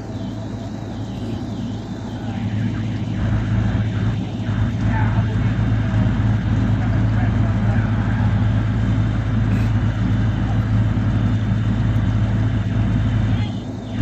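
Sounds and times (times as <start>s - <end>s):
truck engine humming: 0.0s - 14.0s.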